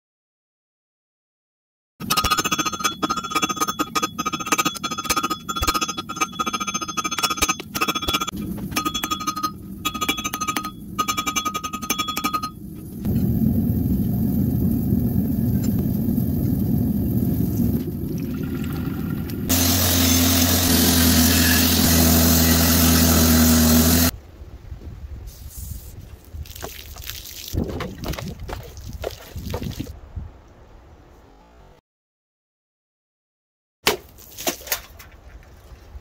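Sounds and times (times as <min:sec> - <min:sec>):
anvil ringing: 0:02.0 - 0:12.8.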